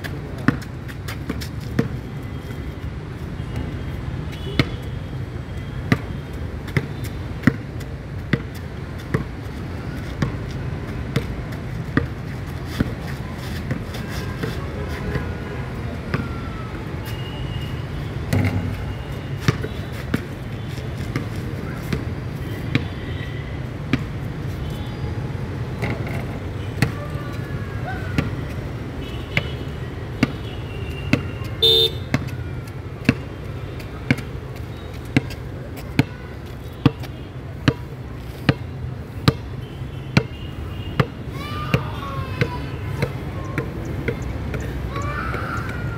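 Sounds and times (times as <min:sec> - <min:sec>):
basketball bouncing on hard court: 0:08.3 - 0:09.3.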